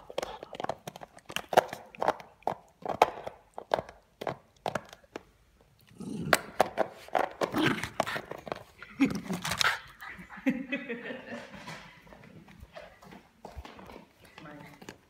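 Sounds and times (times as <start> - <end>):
dog chewing plastic bottle: 0.0 - 5.4, 6.4 - 9.9
dog growling: 5.8 - 6.6.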